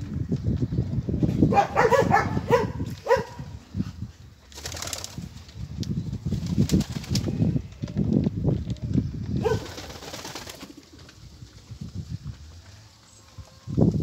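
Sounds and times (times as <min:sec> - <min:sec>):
wings rustling: 0:04.5 - 0:05.5, 0:09.4 - 0:11.9
pigeons cooing: 0:08.8 - 0:11.2.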